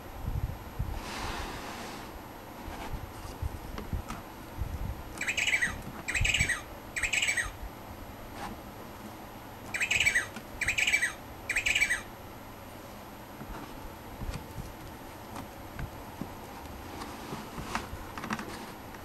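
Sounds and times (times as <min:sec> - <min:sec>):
recorded penguin squawks: 0:05.2 - 0:07.6, 0:09.7 - 0:12.1.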